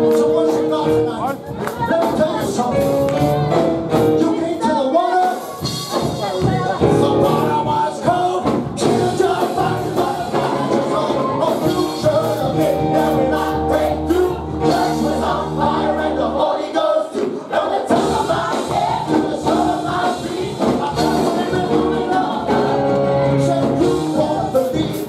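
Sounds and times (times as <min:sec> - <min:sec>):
keyboard chords: 0:00.0 - 0:01.5, 0:02.2 - 0:04.6, 0:06.8 - 0:07.9, 0:08.8 - 0:16.7, 0:17.9 - 0:25.0
choir singing gospel: 0:01.8 - 0:25.0
low bass line: 0:08.8 - 0:16.4.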